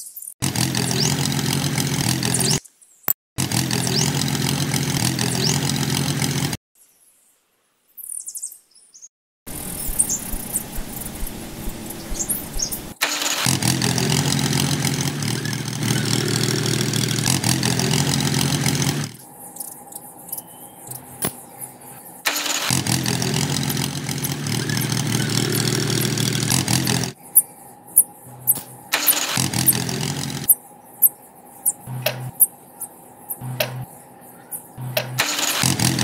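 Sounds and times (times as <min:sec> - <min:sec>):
toy engine running: 0:00.4 - 0:02.6, 0:03.4 - 0:06.6, 0:09.5 - 0:19.7, 0:22.2 - 0:27.2, 0:28.0 - 0:30.6, 0:31.6 - 0:32.5, 0:34.8 - 0:36.0.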